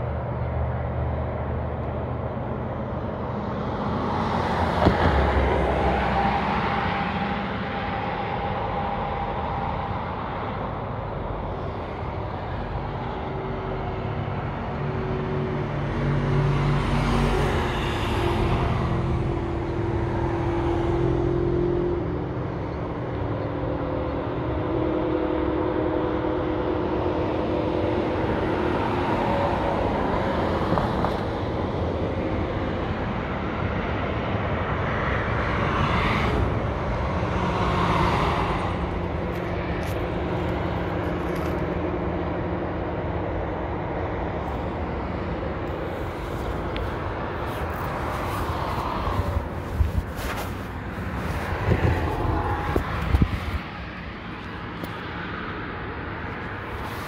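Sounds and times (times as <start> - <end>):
highway traffic: 0.0 - 57.0
loud vehicle passing: 0.0 - 57.0.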